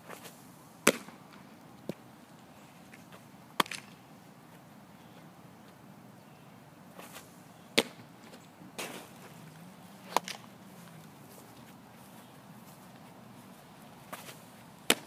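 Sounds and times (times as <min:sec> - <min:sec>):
dull scuffing: 0:07.0 - 0:07.4, 0:08.2 - 0:15.0.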